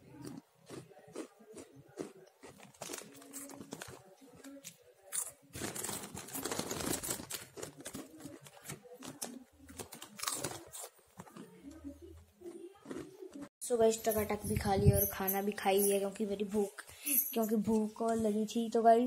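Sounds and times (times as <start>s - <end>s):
crunching and chewing snack: 0.0s - 13.5s
plastic wrapper crinkling: 2.6s - 4.6s, 5.2s - 11.4s.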